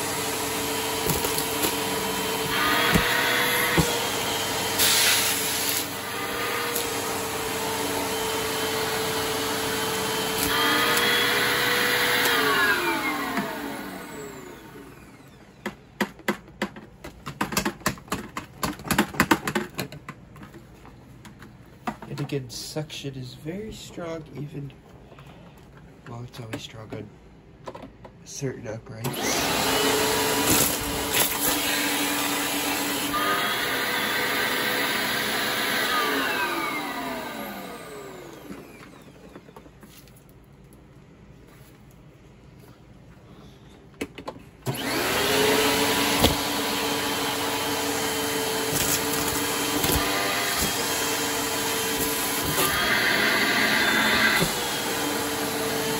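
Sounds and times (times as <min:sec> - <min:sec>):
vacuum cleaner running: 0:00.0 - 0:15.8, 0:29.0 - 0:39.6, 0:44.6 - 0:55.9
hard objects clicking and knocking: 0:15.5 - 0:22.4.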